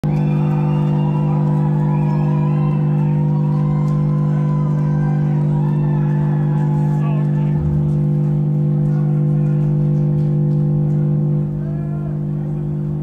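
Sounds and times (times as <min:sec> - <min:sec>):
rock band low drone: 0:00.0 - 0:13.0.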